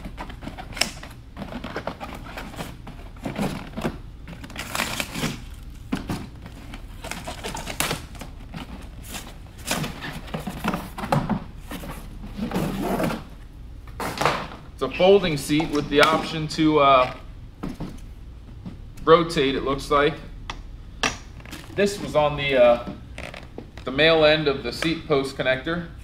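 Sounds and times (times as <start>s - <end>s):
cardboard rustling and scraping: 0.0s - 14.4s.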